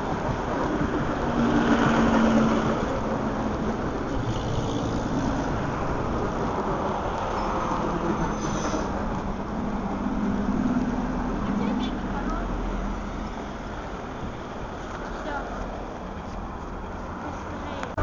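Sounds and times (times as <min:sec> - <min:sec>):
train wheels rumbling: 0:00.0 - 0:18.0.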